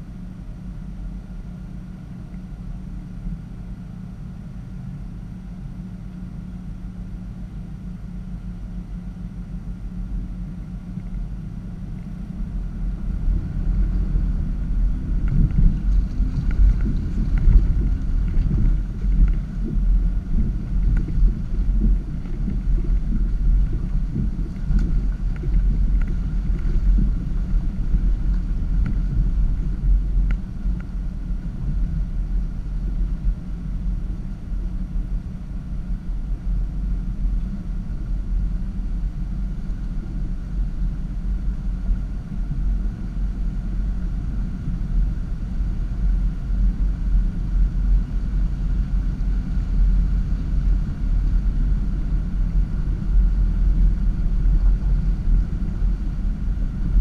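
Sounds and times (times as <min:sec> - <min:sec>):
vehicle engine rumbling: 0:00.0 - 0:57.0
faint ticks: 0:15.2 - 0:31.0.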